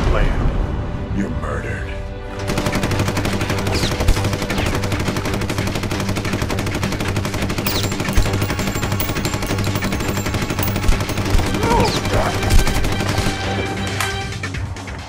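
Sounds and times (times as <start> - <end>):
submachine gun full-auto burst: 2.4 - 7.7.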